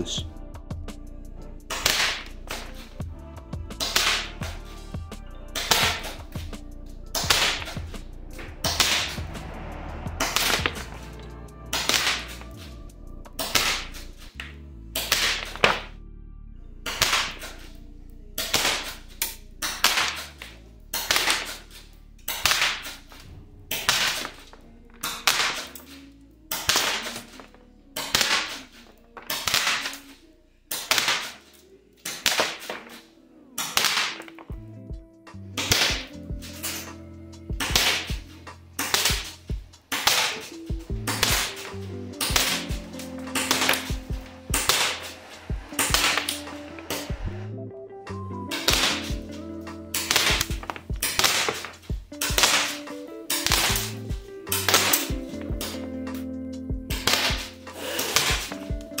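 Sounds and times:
airsoft shotgun firing: 1.7s - 2.7s, 7.2s - 7.9s, 10.2s - 11.0s, 11.7s - 12.4s, 13.4s - 14.0s, 15.0s - 15.9s, 16.9s - 17.6s, 19.7s - 20.3s, 21.0s - 21.6s, 23.7s - 25.7s, 29.3s - 30.0s, 30.7s - 31.4s, 33.6s - 34.4s, 35.6s - 36.8s, 37.6s - 47.2s, 48.5s - 49.4s, 50.0s - 55.9s, 56.9s - 58.7s.

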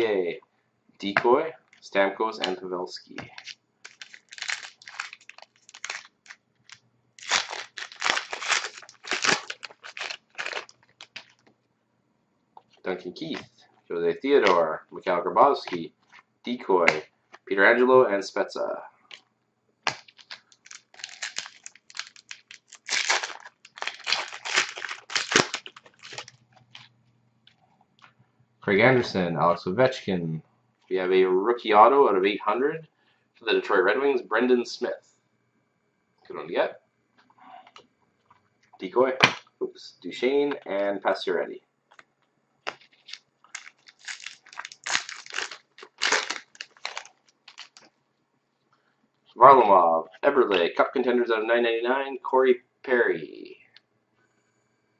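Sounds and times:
wrapper being torn and crinkled: 3.3s - 11.5s, 19.9s - 26.9s, 42.7s - 47.9s.

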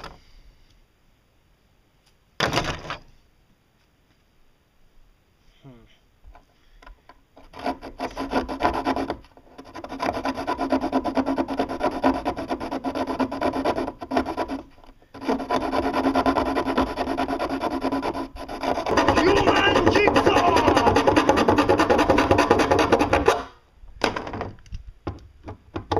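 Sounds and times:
hand saw rasping through fiberglass: 7.4s - 23.6s.

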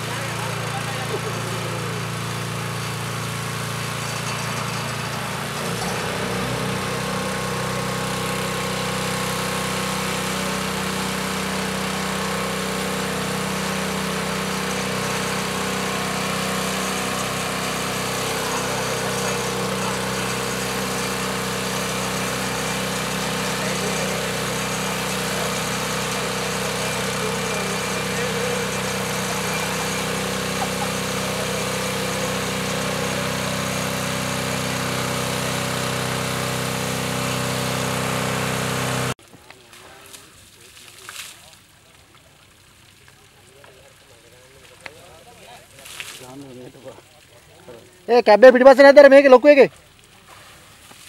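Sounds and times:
engine running: 0.0s - 39.2s
hose spraying water: 0.0s - 51.0s.

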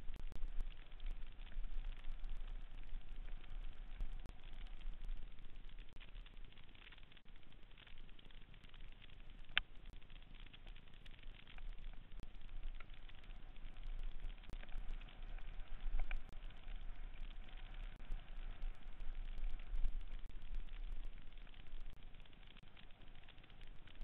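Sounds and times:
tyres crackling over dirt: 0.0s - 24.0s
wind rumble on microphone: 11.8s - 24.0s.

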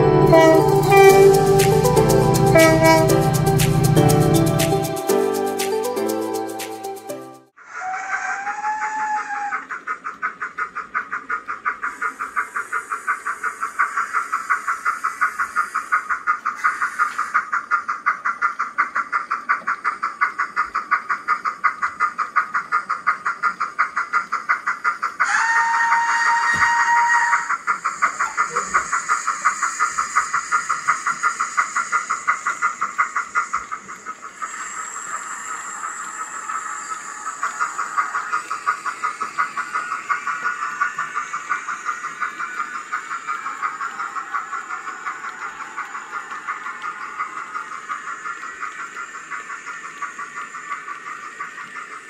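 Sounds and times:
steam whistle: 0.0s - 5.6s, 7.6s - 9.6s, 25.2s - 32.4s, 34.4s - 38.5s
steam exhaust chuffs: 0.0s - 6.9s, 9.3s - 52.0s
steam hiss: 7.6s - 52.0s.

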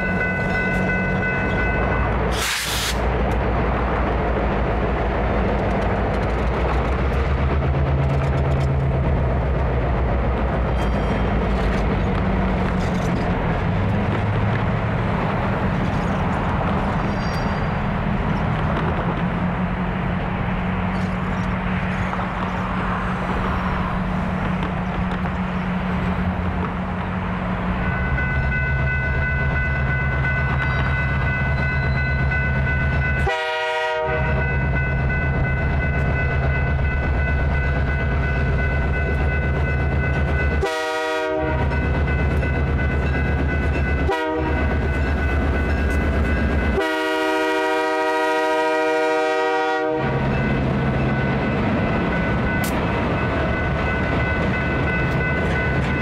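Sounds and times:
diesel locomotive engine drone: 0.0s - 56.0s
locomotive horn blasts: 33.2s - 34.6s, 40.5s - 41.8s, 44.0s - 44.7s, 46.7s - 50.2s.

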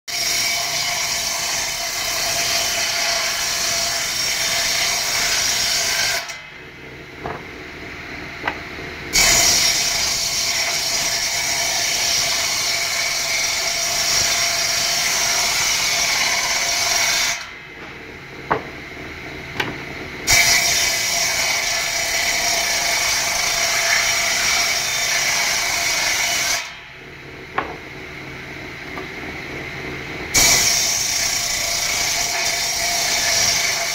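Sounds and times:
circular saw cutting wood: 0.1s - 6.4s, 8.4s - 17.6s, 20.2s - 26.8s, 30.3s - 33.9s.

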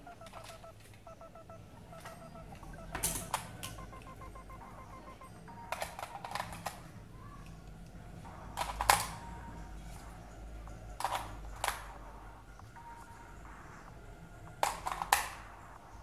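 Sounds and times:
batteries clicking into compartment: 5.7s - 6.8s.

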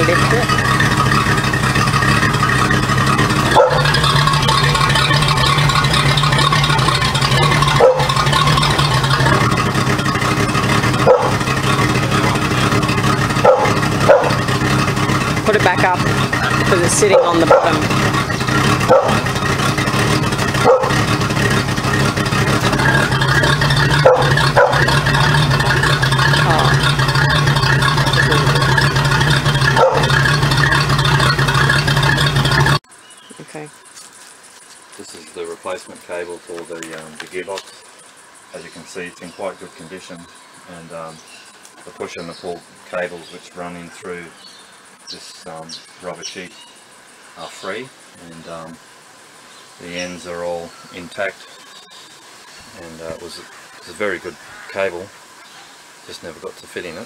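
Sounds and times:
boat motor humming: 0.0s - 57.0s.

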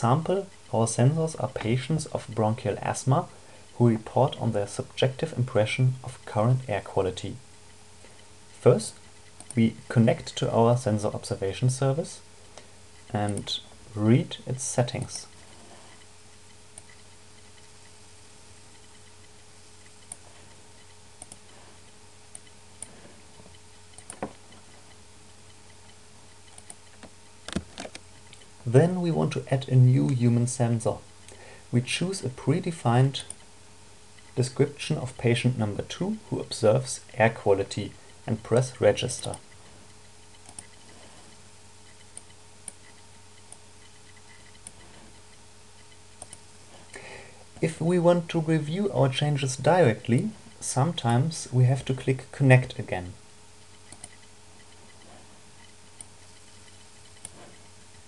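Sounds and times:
low computer hum: 0.0s - 58.0s
low room hiss: 0.0s - 58.0s
computer mouse clicks: 8.9s - 9.6s, 16.7s - 17.8s, 19.8s - 21.6s, 22.3s - 24.9s, 25.7s - 28.5s, 40.4s - 41.0s, 41.9s - 44.9s, 45.8s - 46.5s, 53.8s - 57.7s.

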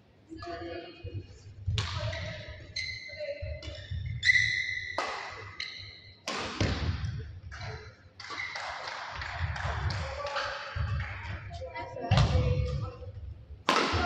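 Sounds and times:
shoes squeaking on court floor: 1.9s - 6.3s, 7.5s - 11.1s
racket striking shuttlecock: 4.9s - 10.0s, 13.6s - 14.0s.

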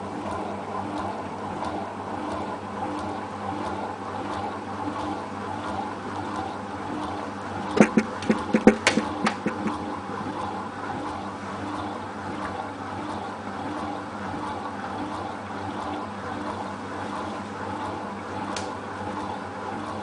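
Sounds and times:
washing machine motor humming: 3.2s - 10.5s
sharp knocks: 7.8s - 9.8s
water swishing: 7.8s - 9.9s.

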